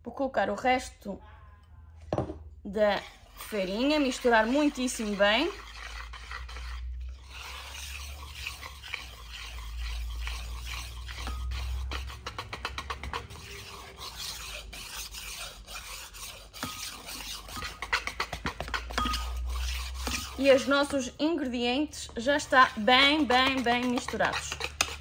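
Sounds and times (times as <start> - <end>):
whisk beating batter in bowl: 2.9 - 25.0.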